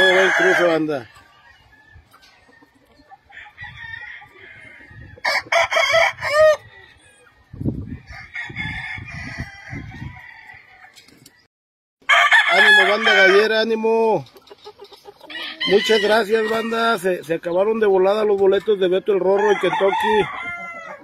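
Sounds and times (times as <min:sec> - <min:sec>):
rooster crowing: 0:00.0 - 0:02.0, 0:03.3 - 0:07.2, 0:08.1 - 0:10.9, 0:12.0 - 0:13.4, 0:15.3 - 0:16.9, 0:19.3 - 0:21.0
chickens clucking: 0:00.0 - 0:08.3, 0:13.2 - 0:21.0.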